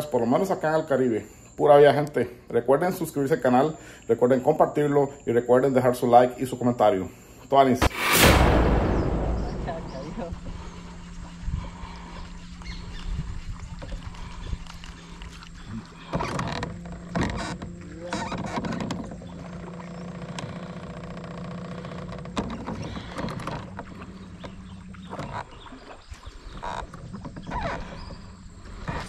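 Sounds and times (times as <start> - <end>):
small boat motor humming: 10.4 - 29.0.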